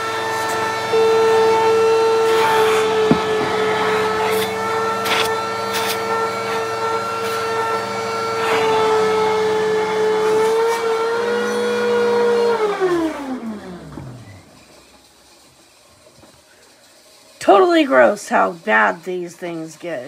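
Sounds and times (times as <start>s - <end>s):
vacuum cleaner motor whining: 0.0s - 15.1s
hose nozzle knocking on filter: 2.3s - 6.0s.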